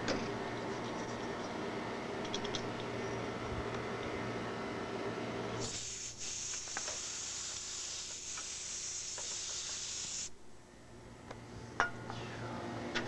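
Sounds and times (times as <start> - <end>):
aerosol can spraying hiss: 5.6 - 10.4.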